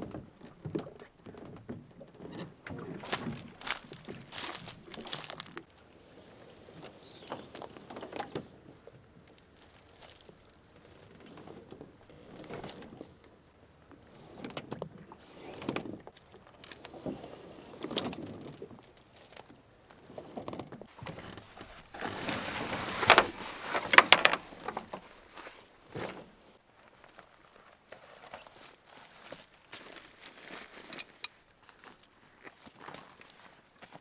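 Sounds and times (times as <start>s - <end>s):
boat hull scraping through reeds: 2.3s - 8.6s, 14.0s - 16.2s, 16.8s - 18.4s, 20.0s - 26.6s
footsteps crunching on dry reeds: 2.9s - 5.8s, 9.4s - 10.6s, 20.9s - 34.0s.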